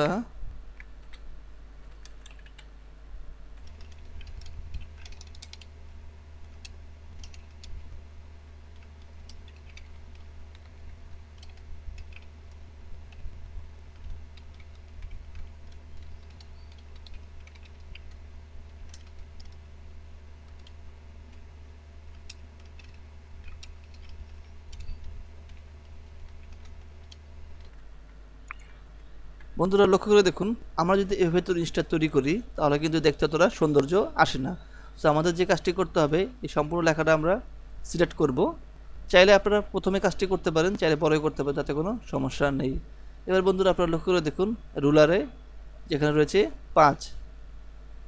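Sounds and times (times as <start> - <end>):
steady low hum: 0.0 - 48.0
keyboard typing clicks: 0.7 - 2.7, 3.6 - 5.7, 6.4 - 7.9, 8.7 - 19.6, 20.4 - 21.4, 22.1 - 27.8.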